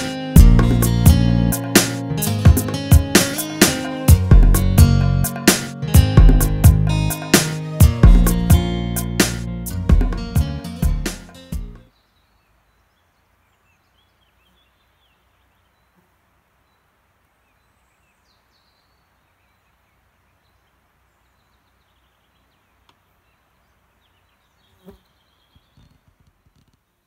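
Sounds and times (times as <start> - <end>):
guitar music: 0.0 - 11.9
bird chirps: 16.6 - 26.7.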